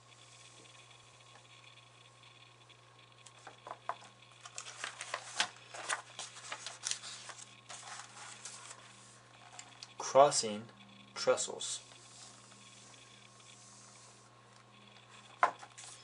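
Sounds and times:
book page turning: 0:04.4 - 0:09.7, 0:15.0 - 0:16.0.

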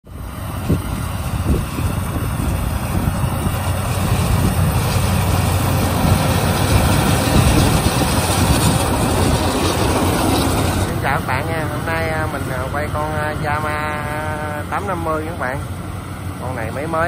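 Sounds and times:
diesel engine hum: 0:00.0 - 0:17.0.

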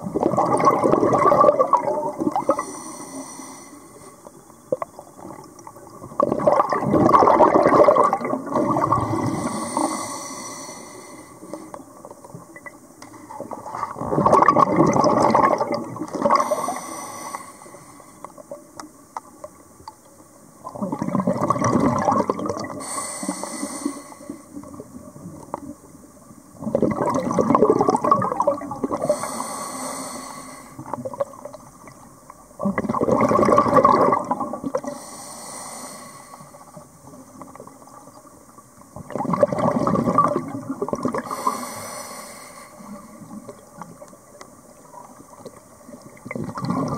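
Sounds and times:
exhaled bubbles gurgling: 0:00.0 - 0:03.3, 0:04.0 - 0:19.9, 0:20.6 - 0:35.3, 0:36.3 - 0:41.8, 0:42.8 - 0:46.9
hissing regulator inhale: 0:02.4 - 0:04.2, 0:09.0 - 0:11.8, 0:16.4 - 0:18.4, 0:22.8 - 0:24.6, 0:29.0 - 0:31.0, 0:34.8 - 0:36.8, 0:41.2 - 0:43.4.

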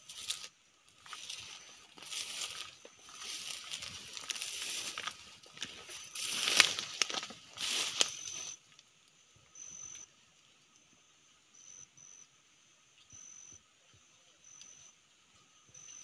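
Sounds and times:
high-pitched insect trill: 0:00.0 - 0:08.7, 0:09.4 - 0:10.1, 0:11.2 - 0:13.6
rustling of leaves and brush: 0:00.0 - 0:11.4.

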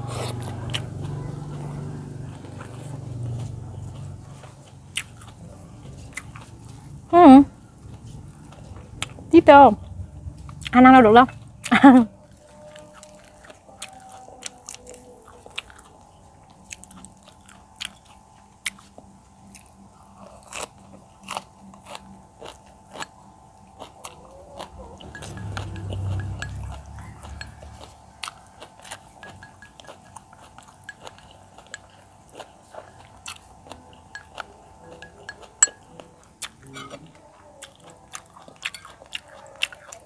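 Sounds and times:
person chewing and crunching: 0:00.0 - 0:07.1, 0:07.8 - 0:40.0
faint background music: 0:00.0 - 0:40.0.

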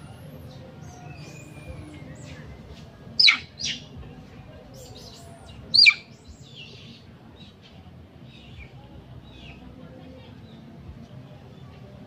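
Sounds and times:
faint scattered bird chirps: 0:00.0 - 0:03.9, 0:04.8 - 0:07.6
loud downward-sweeping bird chirps: 0:05.8 - 0:06.0.

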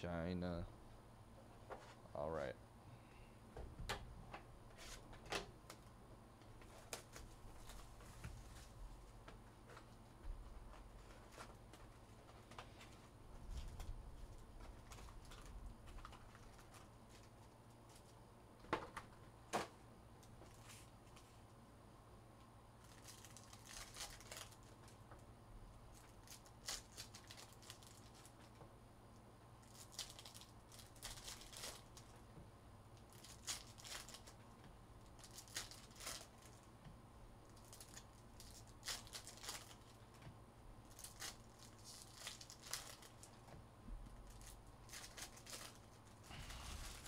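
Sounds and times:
foil wrappers crinkling and tearing: 0:06.6 - 0:08.0, 0:10.6 - 0:18.2, 0:22.8 - 0:25.1, 0:25.9 - 0:28.6, 0:29.6 - 0:32.2, 0:33.0 - 0:34.4, 0:35.0 - 0:36.7, 0:37.4 - 0:40.2, 0:40.8 - 0:43.5, 0:44.2 - 0:47.0.

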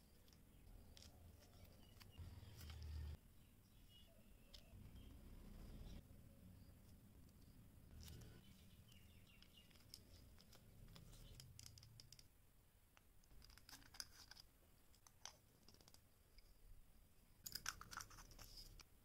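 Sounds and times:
small plastic clicks: 0:08.9 - 0:12.3.

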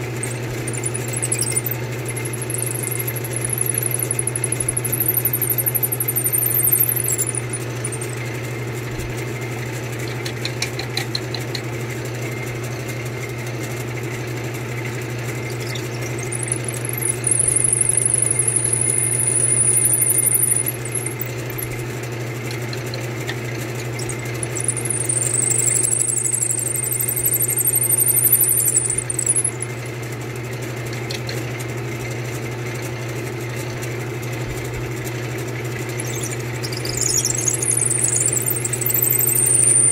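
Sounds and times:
drill bit squealing in wood: 0:00.0 - 0:08.2, 0:15.4 - 0:21.8, 0:23.8 - 0:29.8, 0:35.9 - 0:39.9
lathe motor running: 0:00.0 - 0:08.2, 0:15.3 - 0:21.8, 0:23.8 - 0:29.8.

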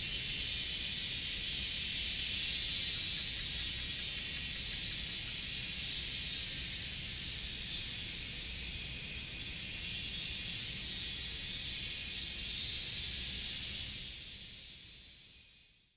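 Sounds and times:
insect chorus droning: 0:00.0 - 0:15.9.

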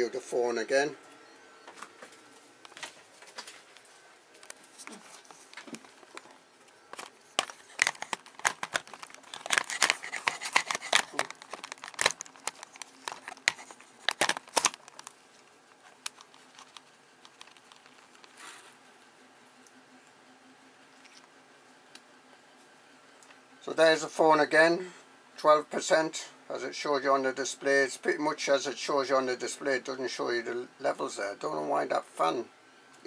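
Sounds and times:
crinkling handling noise: 0:01.7 - 0:18.9.

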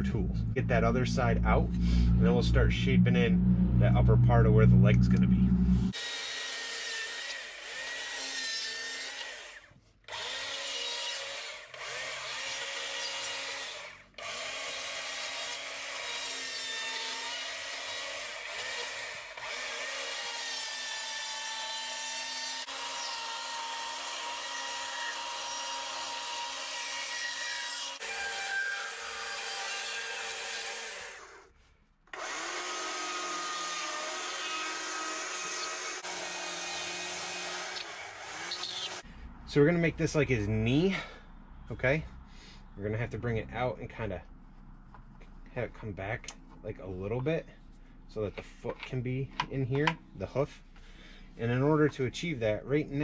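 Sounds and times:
chainsaw cutting wood: 0:05.9 - 0:31.5, 0:32.1 - 0:39.0.

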